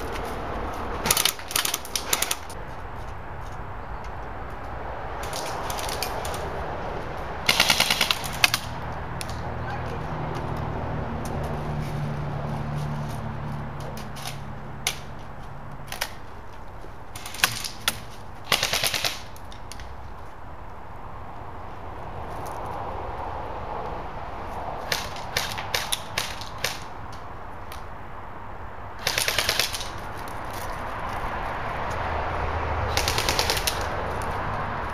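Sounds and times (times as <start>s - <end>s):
airsoft guns firing bursts: 7.5s - 8.6s, 18.5s - 19.3s, 29.0s - 29.9s, 32.9s - 33.9s.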